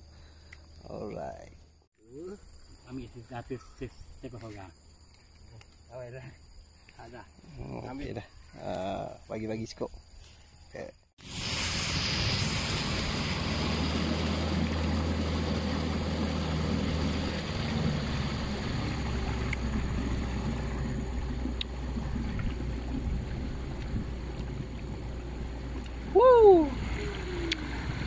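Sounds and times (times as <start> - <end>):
outboard motor running: 11.2 - 28.0
water washing along hull: 11.2 - 28.0.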